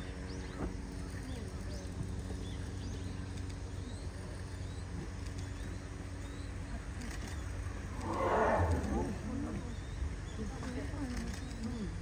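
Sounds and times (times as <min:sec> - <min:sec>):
low background hum: 0:00.0 - 0:12.0
faint bird chirps: 0:01.2 - 0:12.0.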